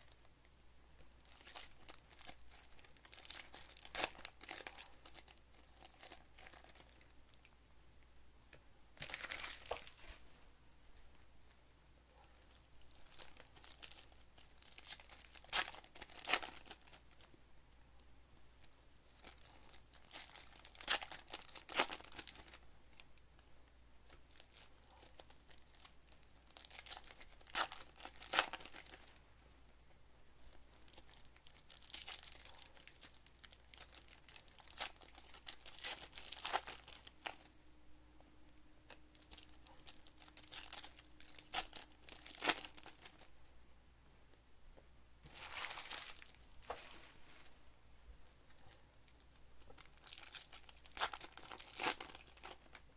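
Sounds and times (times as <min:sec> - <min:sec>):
foil wrappers tearing and crinkling: 0:01.3 - 0:06.8, 0:09.0 - 0:10.2, 0:12.9 - 0:17.2, 0:19.2 - 0:22.6, 0:24.3 - 0:29.0, 0:30.9 - 0:37.4, 0:39.1 - 0:43.3, 0:45.3 - 0:47.0, 0:49.8 - 0:52.8.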